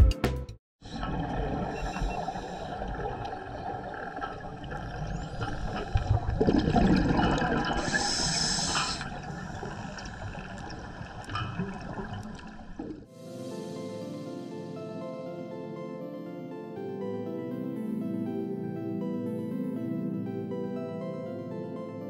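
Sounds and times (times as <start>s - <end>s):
bubbles gurgling: 0.8s - 13.1s
underwater rush: 0.8s - 13.1s
diver breathing through regulator: 1.7s - 3.0s, 7.7s - 10.5s.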